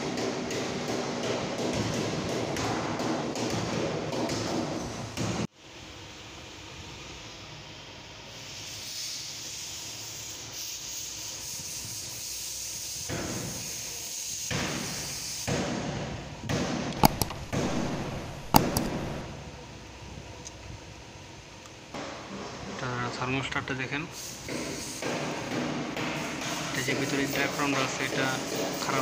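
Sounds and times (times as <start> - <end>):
hands rubbing and scraping parts: 17.0 - 19.2
sharp metallic clicks: 17.0 - 19.2.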